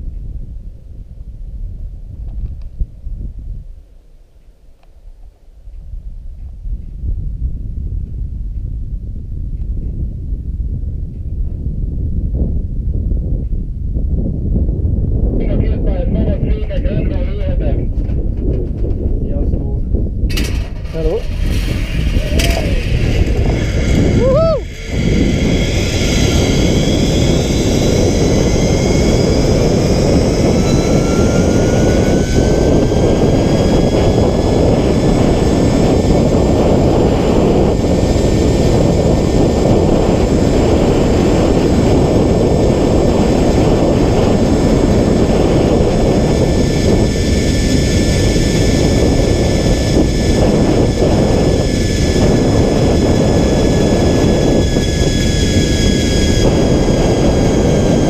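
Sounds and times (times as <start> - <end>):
wind rushing over microphone: 0.0 - 58.0
zipline pulleys whining: 20.3 - 58.0.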